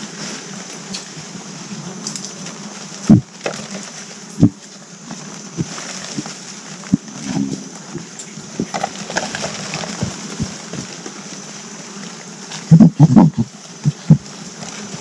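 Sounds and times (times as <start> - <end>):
high-pitched hiss: 0.0 - 15.0
rustles in dry leaves: 0.0 - 15.0
thumps: 3.1 - 3.7.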